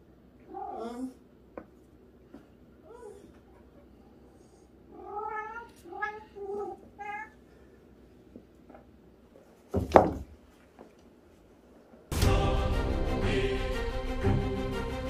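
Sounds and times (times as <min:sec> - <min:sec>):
cat meowing: 0:00.5 - 0:01.2, 0:04.9 - 0:07.4.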